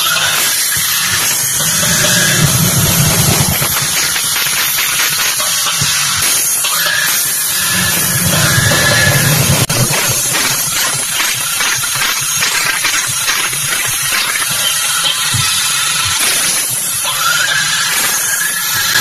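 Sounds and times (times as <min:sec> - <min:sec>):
live band distorted music: 0:00.0 - 0:19.0
fast drum hits: 0:01.1 - 0:05.4.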